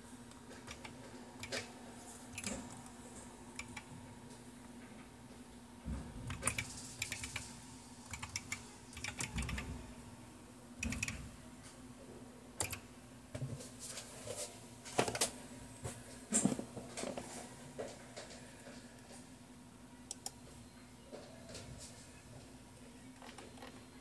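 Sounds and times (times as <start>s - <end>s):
keyboard key clicks: 10.8s - 11.2s.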